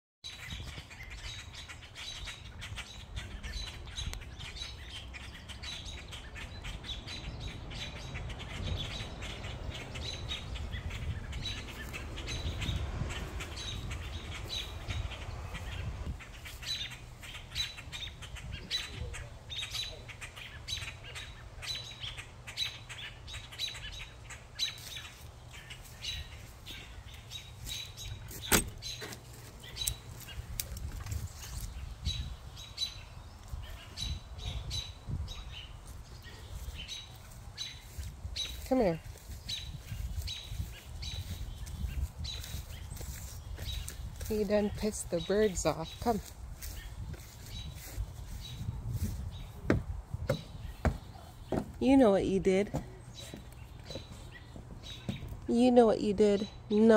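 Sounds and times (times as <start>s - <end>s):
blackbirds alarm calls: 0.2s - 56.9s.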